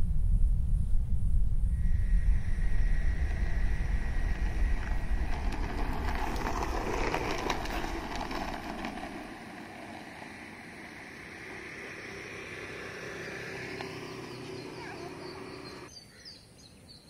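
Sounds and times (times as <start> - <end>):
wind rumble on microphone: 0.0 - 12.6
skateboard wheels rolling on asphalt: 1.8 - 15.9.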